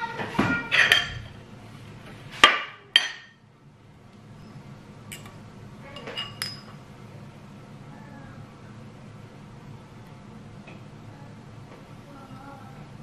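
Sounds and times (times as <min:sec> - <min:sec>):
cutlery clinking on plate: 0:00.7 - 0:01.3, 0:06.0 - 0:06.8.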